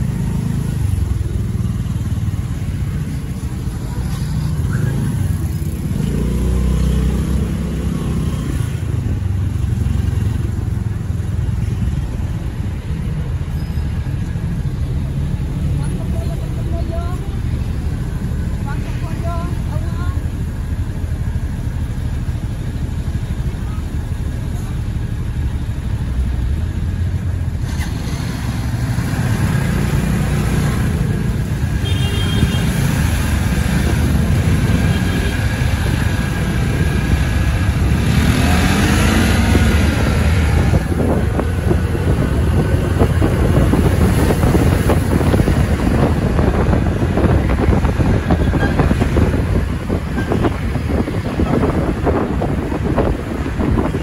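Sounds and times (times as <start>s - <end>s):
wind buffeting microphone: 33.0s - 54.0s.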